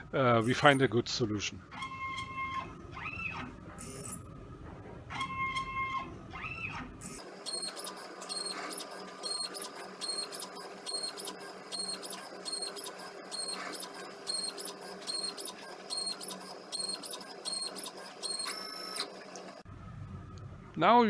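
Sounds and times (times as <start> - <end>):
stepper motors whining: 6.4 - 19.7.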